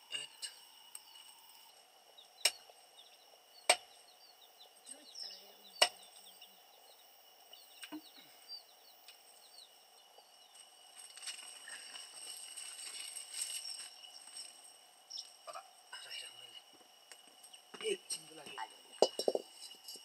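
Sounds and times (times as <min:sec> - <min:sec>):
faint high chirping: 0:00.0 - 0:16.7
steady high-pitched hum: 0:00.0 - 0:20.0
sharp knocks: 0:19.0 - 0:19.5.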